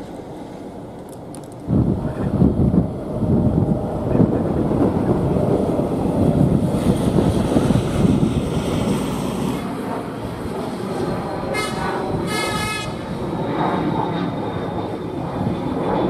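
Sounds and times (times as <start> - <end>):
wind buffeting microphone: 0.0 - 16.0
horn: 11.5 - 13.0.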